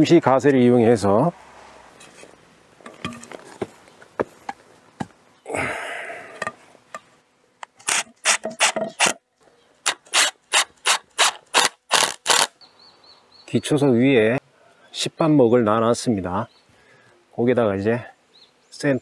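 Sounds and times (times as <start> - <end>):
wood scraping on wood: 1.3 - 4.7.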